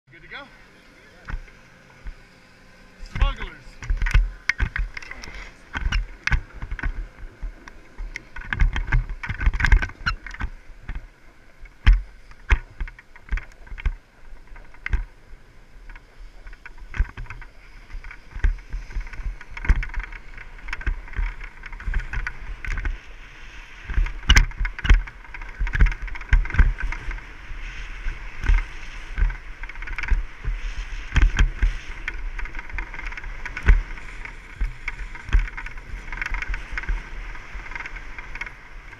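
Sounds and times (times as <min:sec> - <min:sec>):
skis scraping on snow: 0:00.1 - 0:09.2, 0:09.9 - 0:38.9
wind buffeting microphone: 0:01.2 - 0:38.9
camera thumps and knocks: 0:03.1 - 0:11.1, 0:11.7 - 0:15.1, 0:16.6 - 0:23.0, 0:23.9 - 0:27.2, 0:28.4 - 0:38.5.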